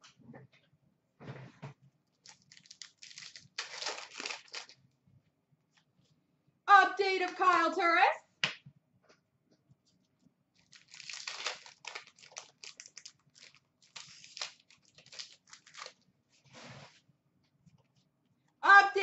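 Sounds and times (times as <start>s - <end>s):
trading cards rustling: 2.2s - 4.8s, 10.6s - 16.0s.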